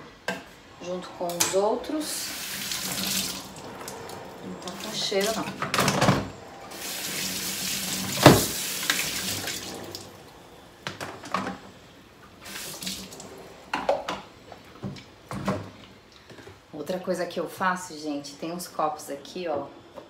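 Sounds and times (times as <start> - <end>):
tap water running into sink: 2.4 - 4.0, 6.7 - 10.0, 12.4 - 13.2.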